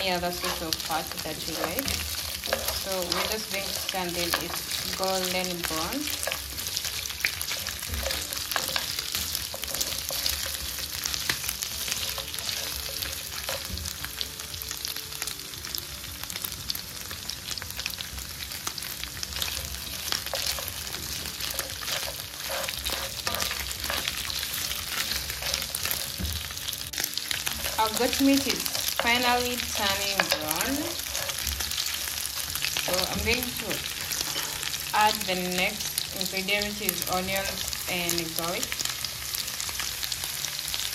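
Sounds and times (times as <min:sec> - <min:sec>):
spatula stirring: 0:00.0 - 0:14.3, 0:18.6 - 0:34.9
meat sizzling in a pan: 0:00.0 - 0:40.9.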